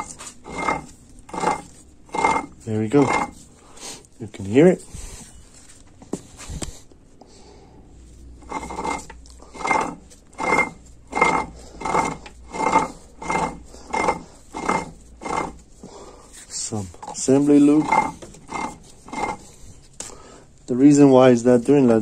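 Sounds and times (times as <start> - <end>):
gear rasping whir: 0.0 - 3.6, 8.4 - 15.9, 17.0 - 19.7.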